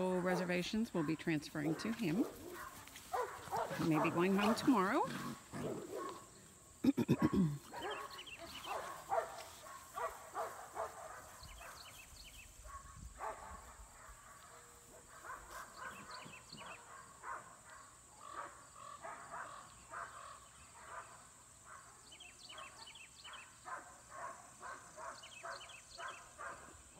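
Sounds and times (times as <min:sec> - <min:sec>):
puppy barking or growling: 0:01.7 - 0:06.2, 0:07.1 - 0:11.3.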